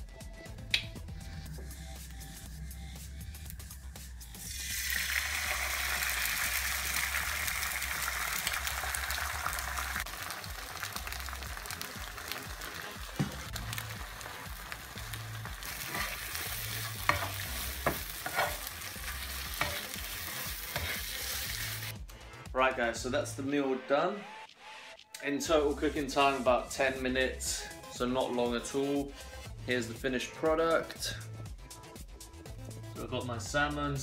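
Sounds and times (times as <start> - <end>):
egg sizzling in a frying pan: 4.4 - 21.9
spatula scraping and tapping pan: 16.8 - 18.8, 19.5 - 20.0, 20.7 - 21.1.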